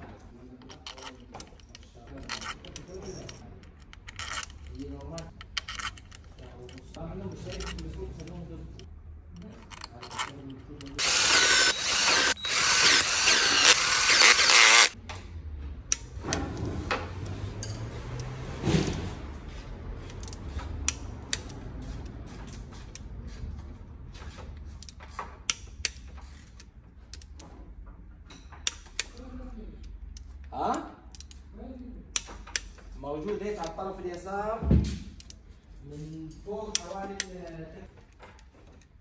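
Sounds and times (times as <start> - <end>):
ratchet wrench clicking: 0.9 - 15.0
power tool running: 11.0 - 15.0.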